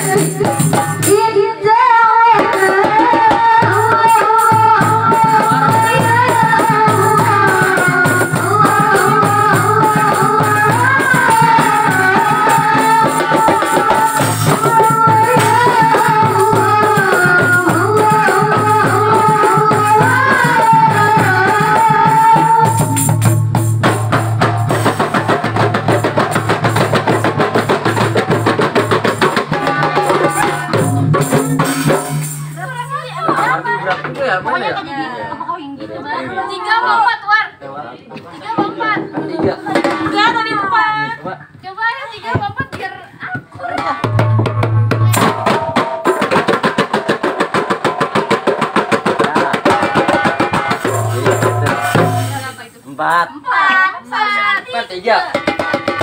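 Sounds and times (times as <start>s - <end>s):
woman singing: 0.0s - 23.4s, 28.8s - 34.0s
hand drums: 0.0s - 35.9s, 38.4s - 53.2s, 55.2s - 56.0s
jingling tambourine: 4.0s - 34.0s, 49.7s - 52.7s.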